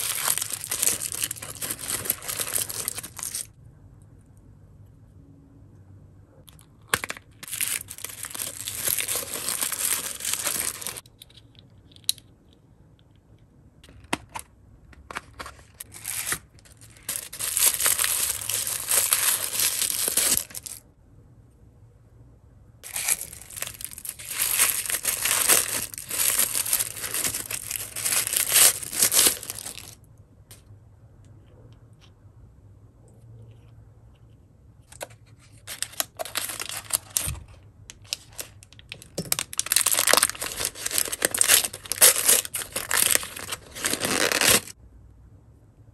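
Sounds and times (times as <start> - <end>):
plastic wrapping crinkling: 0.0 - 3.5, 7.4 - 11.0, 15.7 - 20.8, 22.8 - 30.0, 35.6 - 44.8.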